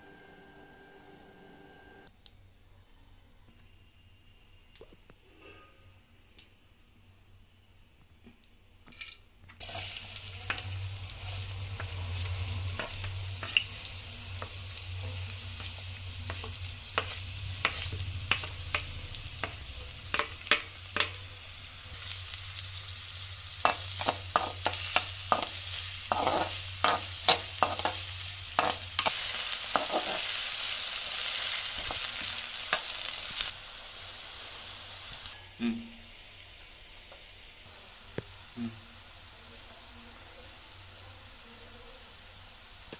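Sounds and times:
onions sizzling in hot oil: 9.6 - 42.9.

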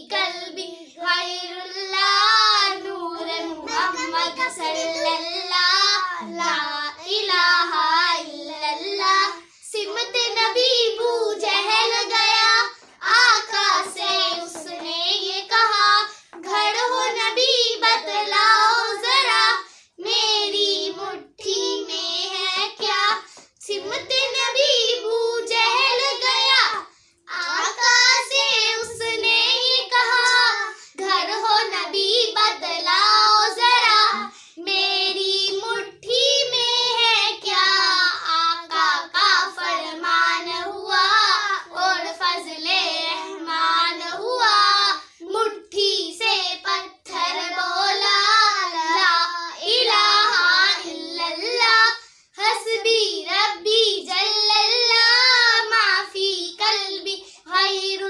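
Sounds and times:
children singing unaccompanied: 0.0 - 58.0.

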